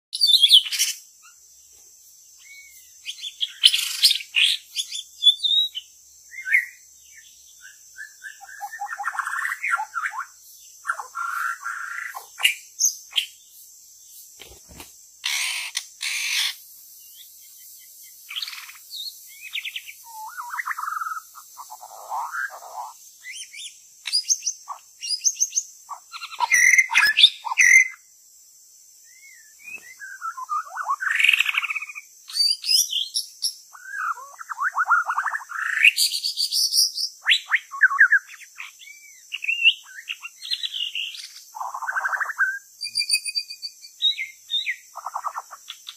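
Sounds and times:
faint high-pitched hiss: 0.2s - 45.9s
bird singing whistled phrases: 2.4s - 6.8s, 7.6s - 10.3s, 18.3s - 21.3s, 29.1s - 45.5s.

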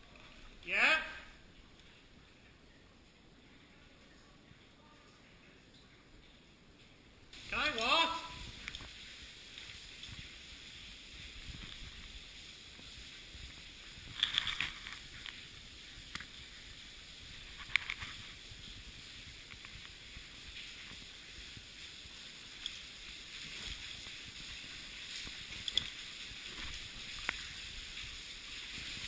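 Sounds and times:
water trickling in a cave: 0.0s - 29.0s.

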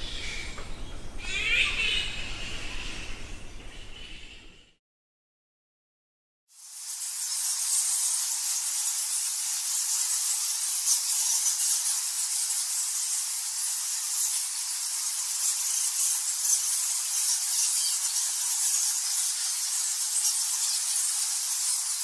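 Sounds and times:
bat swarm squeaking and fluttering: 6.7s - 22.0s.

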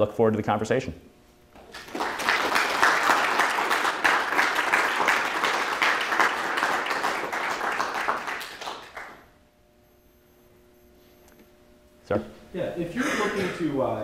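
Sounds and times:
audience applauding: 1.6s - 9.2s.

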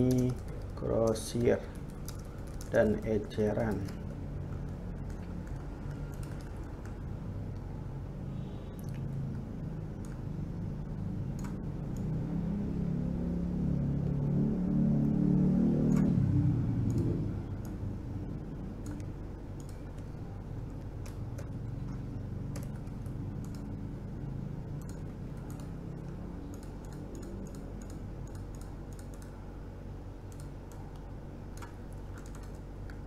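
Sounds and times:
steady low hum: 0.0s - 33.0s
low rumble: 6.4s - 19.5s
mouse and keyboard clicks: 30.3s - 33.0s.

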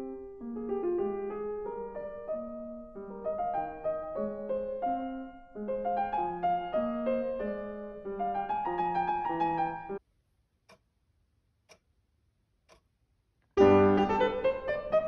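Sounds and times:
piano music: 0.0s - 10.0s, 13.6s - 15.0s
wall clock ticking: 10.6s - 11.0s, 11.6s - 13.1s.

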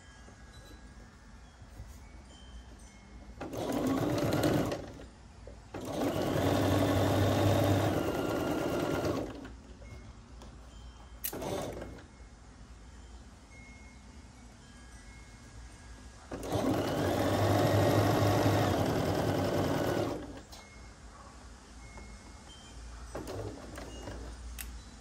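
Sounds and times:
sewing machine stitching: 3.4s - 5.1s, 5.7s - 9.6s, 11.3s - 12.0s, 16.3s - 20.4s.

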